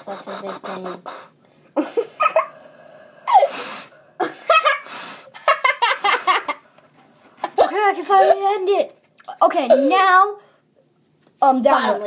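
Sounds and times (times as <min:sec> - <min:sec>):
boy laughing: 0:01.8 - 0:02.6, 0:04.2 - 0:06.7, 0:07.4 - 0:08.6.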